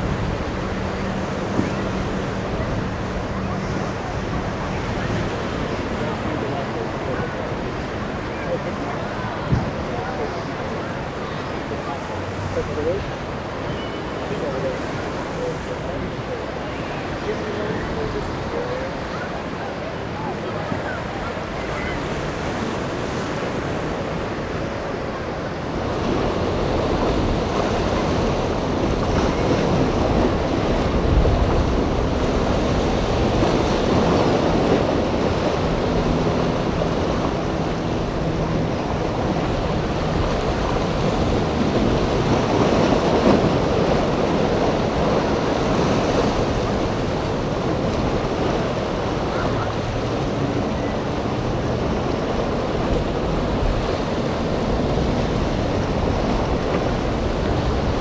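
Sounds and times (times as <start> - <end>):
faint boat engine drone: 0.0 - 58.0
ocean waves breaking: 0.0 - 58.0
wind buffeting microphone: 25.6 - 58.0.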